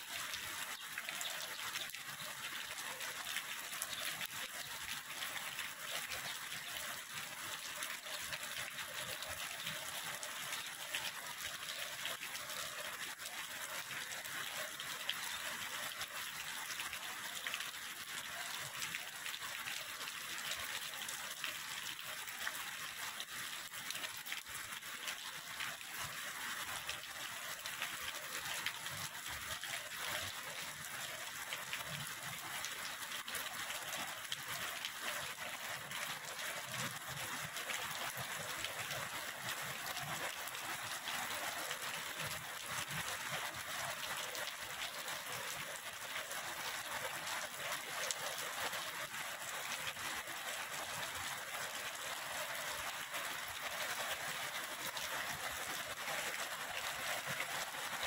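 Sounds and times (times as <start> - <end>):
heavy rain falling: 0.0 - 58.0
rushing canal water: 27.0 - 46.5.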